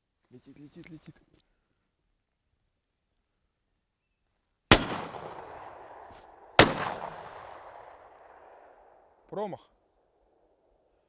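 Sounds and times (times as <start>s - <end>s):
shotgun shots with echo: 4.7s - 8.8s.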